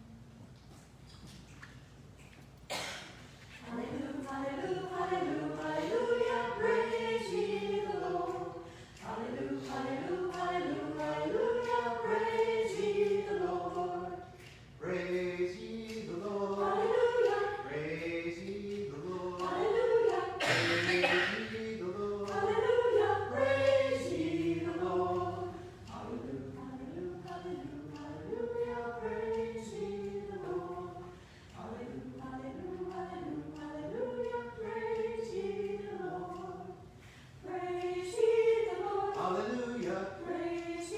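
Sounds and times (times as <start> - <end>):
mixed choir singing: 3.6 - 40.9.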